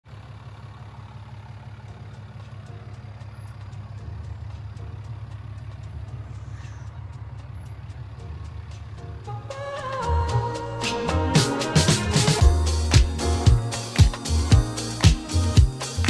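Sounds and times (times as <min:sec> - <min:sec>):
diesel engine idling: 0:00.0 - 0:16.0
faint repeated ticking: 0:00.8 - 0:09.4.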